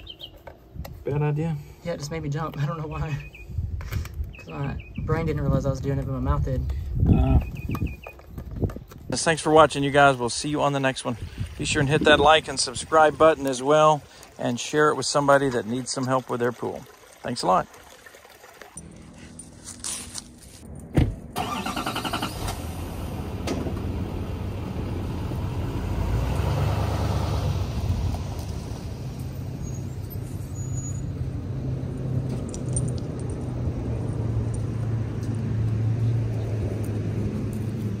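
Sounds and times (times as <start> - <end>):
truck engine rumbling: 18.8 - 38.0
truck door slamming: 20.9 - 21.4.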